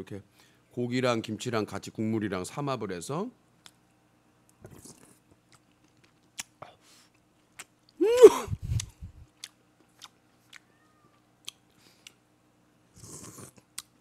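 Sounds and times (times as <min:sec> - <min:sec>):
wet mouth clicks chewing: 0:04.6 - 0:06.6, 0:08.6 - 0:10.7
person crying out: 0:08.0 - 0:08.9.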